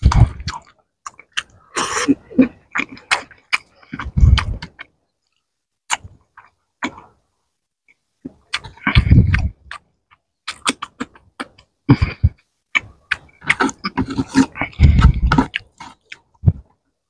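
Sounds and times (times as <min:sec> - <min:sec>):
mouth clicks: 0:00.0 - 0:07.2, 0:07.9 - 0:16.8
person chewing: 0:00.0 - 0:07.2, 0:07.9 - 0:16.8
wet lip-smacking: 0:05.9 - 0:07.1.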